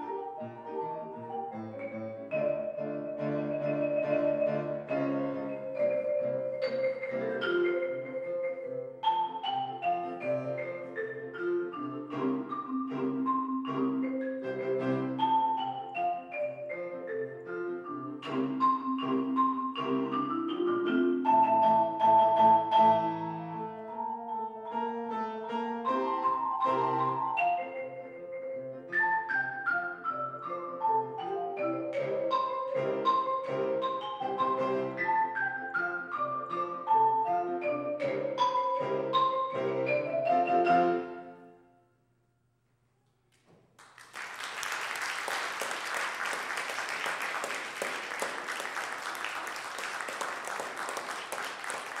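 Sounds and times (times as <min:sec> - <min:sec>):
marimba playing fast notes: 0:00.0 - 0:24.7, 0:25.8 - 0:41.4
piano accompaniment: 0:00.0 - 0:41.5
audience applauding: 0:43.8 - 0:52.0.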